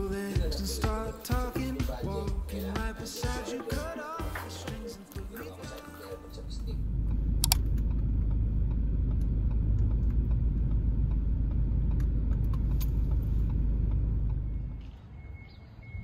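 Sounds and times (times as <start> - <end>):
car cabin low rumble: 5.5 - 14.8.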